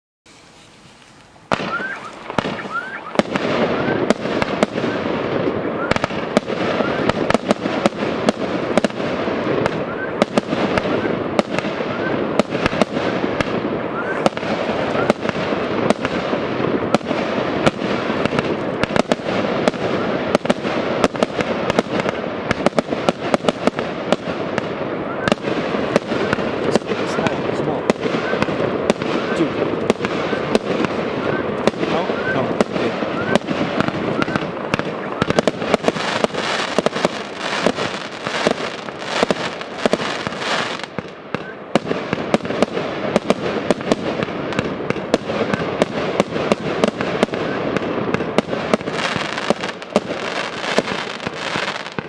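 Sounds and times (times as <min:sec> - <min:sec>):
firework crackling: 0:00.3 - 0:52.0
rising firework whistles: 0:00.3 - 0:52.0
firework launch bangs: 0:01.5 - 0:52.0.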